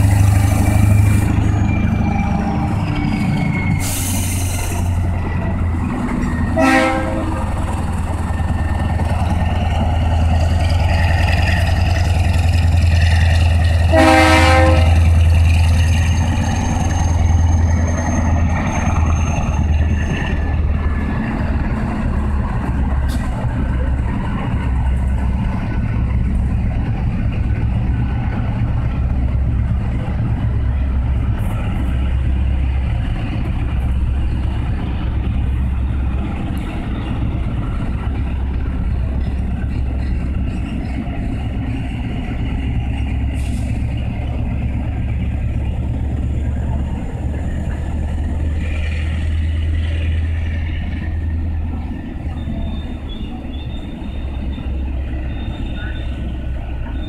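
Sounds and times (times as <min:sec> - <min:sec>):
locomotive engine rumbling: 0:00.0 - 0:57.0
train horn: 0:06.6 - 0:07.6, 0:13.8 - 0:15.1.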